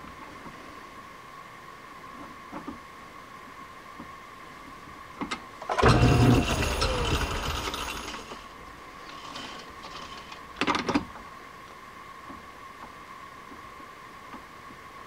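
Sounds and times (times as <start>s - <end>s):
lathe spindle whine: 5.6s - 10.5s.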